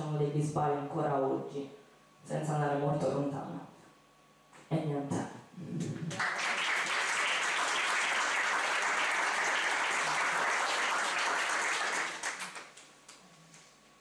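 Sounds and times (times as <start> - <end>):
audience applauding: 6.1 - 13.2.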